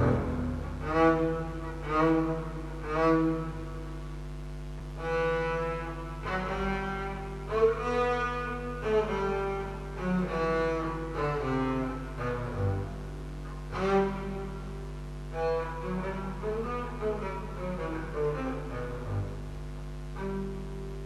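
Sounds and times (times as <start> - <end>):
steady low drone: 0.0 - 5.5
bowed double bass notes: 0.0 - 21.0.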